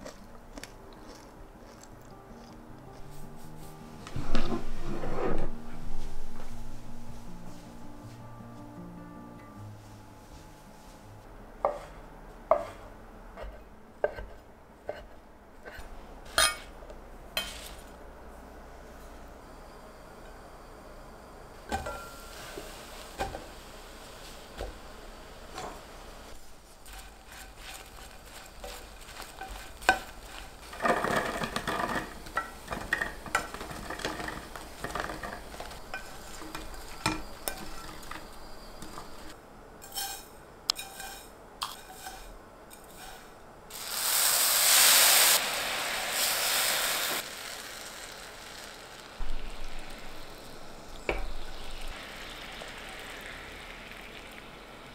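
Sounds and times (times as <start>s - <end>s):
rustling: 26.4s - 39.4s
spatula scraping sugar in a pan: 26.7s - 39.2s, 39.8s - 43.9s.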